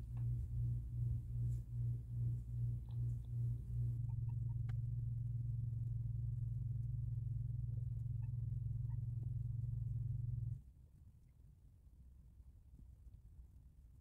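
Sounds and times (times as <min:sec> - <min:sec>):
low hum: 0:00.0 - 0:10.7
faint ticks: 0:02.4 - 0:10.6.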